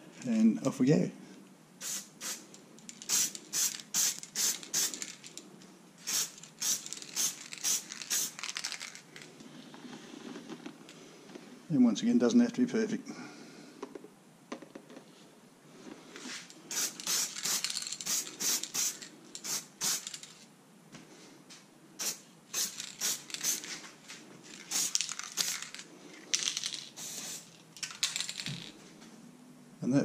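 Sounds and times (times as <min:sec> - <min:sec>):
spray paint can hissing: 0:01.8 - 0:05.4, 0:06.0 - 0:09.0, 0:16.7 - 0:20.4, 0:22.0 - 0:23.8, 0:24.5 - 0:25.8, 0:26.4 - 0:28.4.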